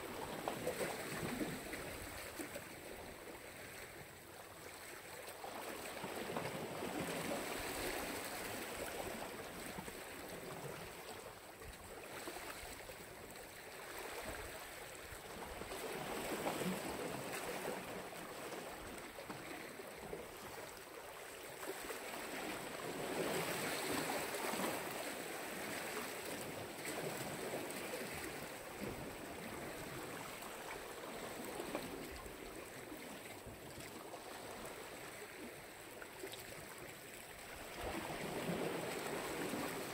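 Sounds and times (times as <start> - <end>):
waves washing onto shore: 37.5 - 39.9.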